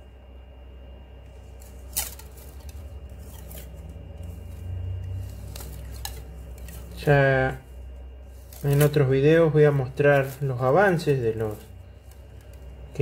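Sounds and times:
low steady hum: 0.0s - 13.0s
plastic tape rubbing: 1.5s - 7.2s, 8.3s - 13.0s.

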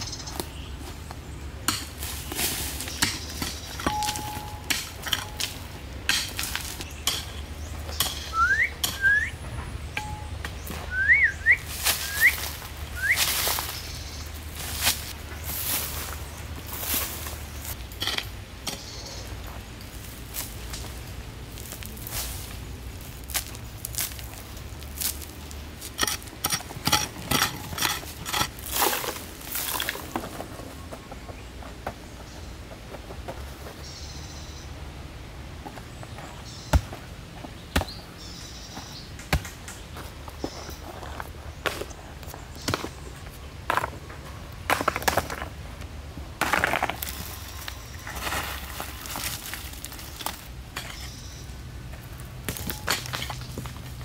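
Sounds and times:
hand scraping gritty soil: 10.8s - 30.9s, 46.4s - 54.0s
stones knocking and clinking: 52.5s - 53.9s.

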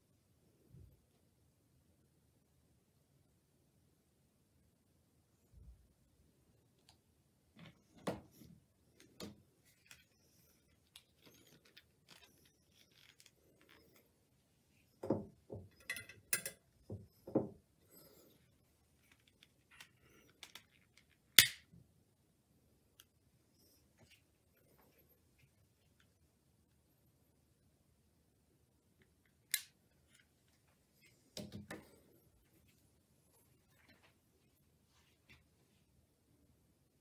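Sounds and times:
handling clicks and rustles: 7.5s - 14.3s.

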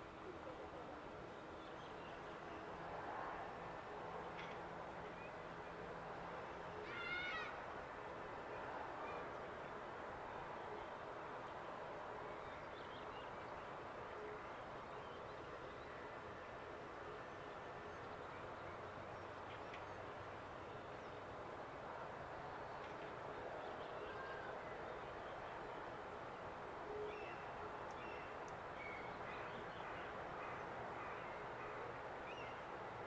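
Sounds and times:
steady outdoor hiss: 0.0s - 33.0s
distant bird calls: 26.9s - 32.7s.

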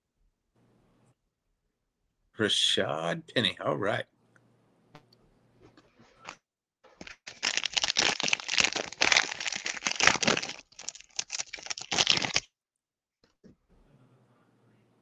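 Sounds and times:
foil wrapper crinkling: 7.0s - 12.5s.

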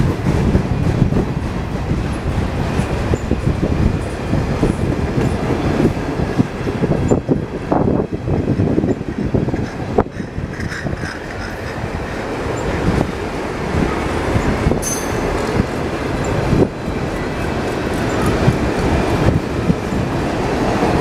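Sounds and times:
train wheels rumbling on rail: 0.0s - 21.0s
wheels clacking over rail joints: 8.3s - 21.0s
high-pitched wheel squeal: 14.8s - 15.6s.

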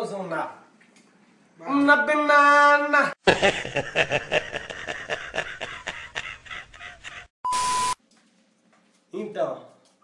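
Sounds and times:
man laughing hard: 3.2s - 7.3s
short steady beep: 7.4s - 8.0s.

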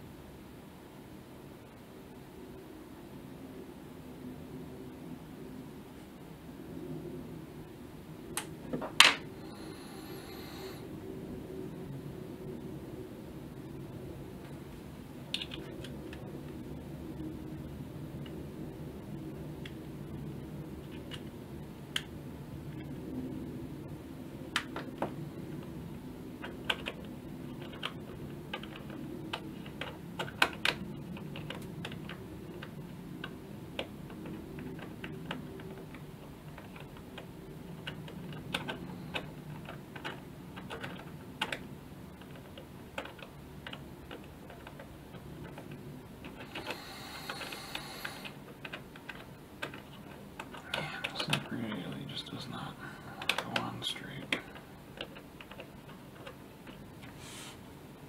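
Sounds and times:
steady low hum: 0.0s - 58.0s
brief hiss: 57.1s - 57.6s.

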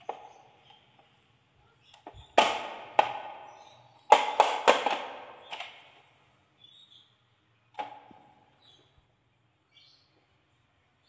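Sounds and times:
plastic toy truck knocks and rattles: 2.0s - 5.8s.

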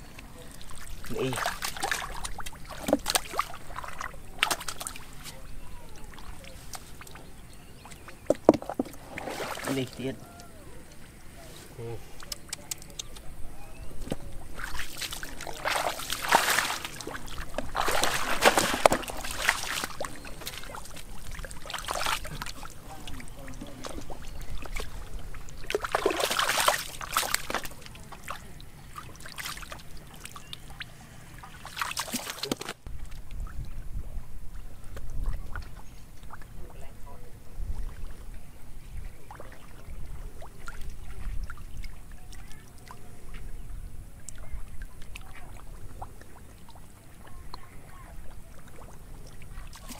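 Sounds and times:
hands splashing in muddy water: 0.3s - 10.0s, 14.0s - 33.2s, 48.3s - 49.9s.

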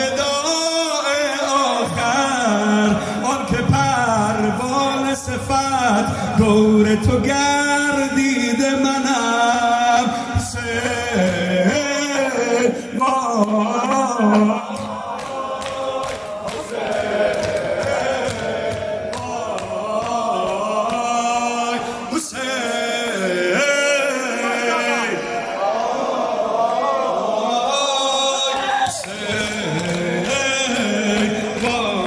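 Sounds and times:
men chanting a lament: 0.0s - 32.0s
bare hands slapping chests: 13.4s - 21.2s.

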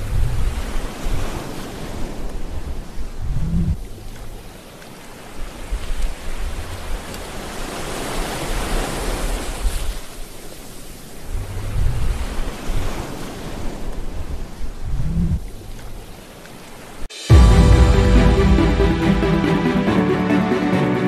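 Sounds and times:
waves breaking on a beach: 0.0s - 21.0s
low rumble: 17.2s - 21.0s.

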